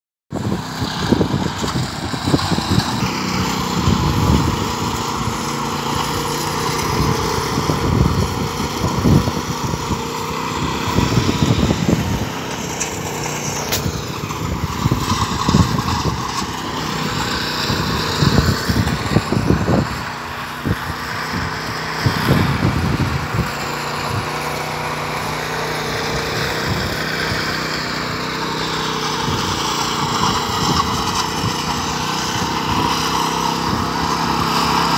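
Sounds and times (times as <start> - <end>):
power trowel engine running: 0.3 - 34.9.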